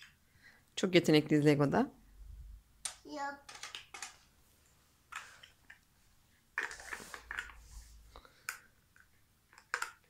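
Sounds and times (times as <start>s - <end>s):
plastic toy blocks clicking: 2.8s - 4.2s, 8.4s - 10.0s.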